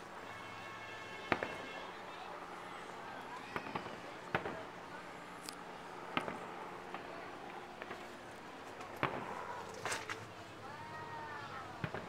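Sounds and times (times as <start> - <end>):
distant fireworks bangs: 1.2 - 1.8, 3.4 - 5.0, 6.0 - 8.2, 8.8 - 9.5, 11.8 - 12.0
faint fireworks pops: 1.3 - 1.8, 3.3 - 10.3, 11.7 - 12.0.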